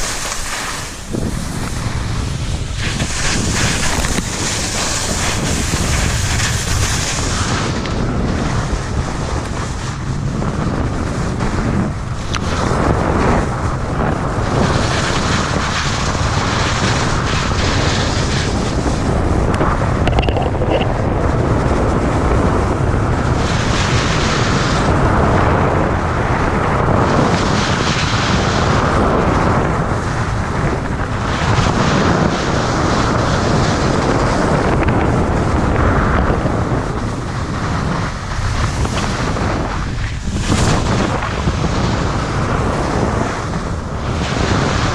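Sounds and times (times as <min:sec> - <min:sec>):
skis hissing on packed snow: 0:00.0 - 0:07.8, 0:14.7 - 0:19.0
wind buffeting microphone: 0:00.0 - 0:44.9.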